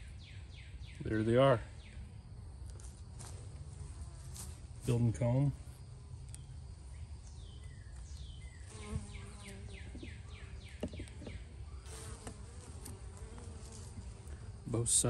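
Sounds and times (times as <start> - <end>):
bees buzzing: 5.6 - 14.9.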